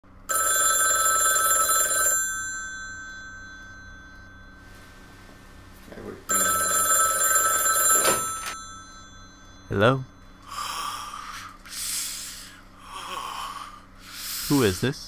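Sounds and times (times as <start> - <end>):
telephone bell ringing: 0.3 - 5.2, 6.3 - 10.6.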